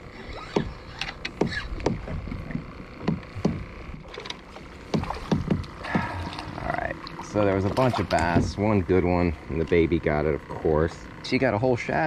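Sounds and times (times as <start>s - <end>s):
water knocking and sloshing on kayak hull: 1.4s - 9.9s.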